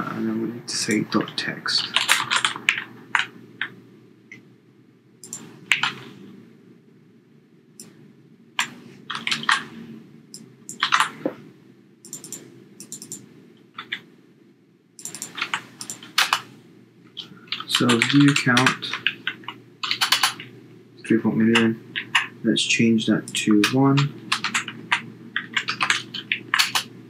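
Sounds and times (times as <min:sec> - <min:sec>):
computer keyboard typing: 0:01.8 - 0:03.8, 0:05.2 - 0:06.0, 0:08.6 - 0:09.7, 0:10.4 - 0:11.2, 0:12.1 - 0:14.1, 0:15.0 - 0:16.5, 0:17.2 - 0:20.5, 0:21.5 - 0:22.3, 0:23.2 - 0:26.9.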